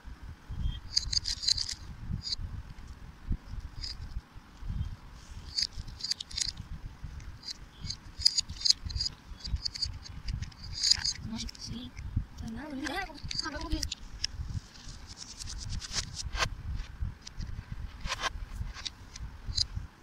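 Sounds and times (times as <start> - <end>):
plastic beads clicking: 0.9 - 2.4, 5.5 - 6.6, 7.4 - 11.7, 12.4 - 14.0
handling rustle: 0.9 - 3.0, 5.2 - 16.5.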